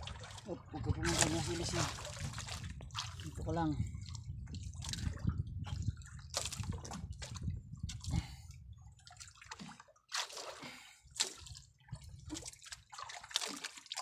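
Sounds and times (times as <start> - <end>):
water dripping and splashing: 0.0 - 8.2, 8.9 - 14.0.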